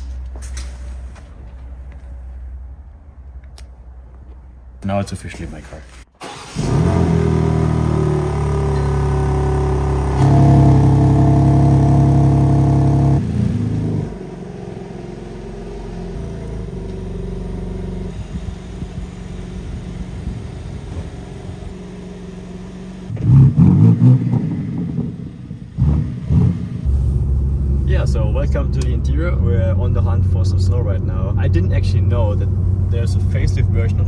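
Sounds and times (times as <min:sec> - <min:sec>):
car engine idling: 0:06.2 - 0:23.2, 0:24.3 - 0:34.0
engine throttle blips: 0:06.2 - 0:34.0.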